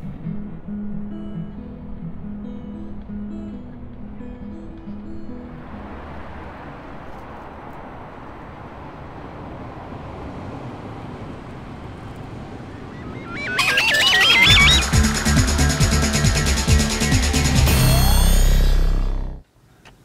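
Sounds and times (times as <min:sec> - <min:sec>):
steady background noise: 0:00.0 - 0:20.0
fast-warbling electronic tone: 0:12.2 - 0:19.4
electronic music: 0:12.6 - 0:19.4.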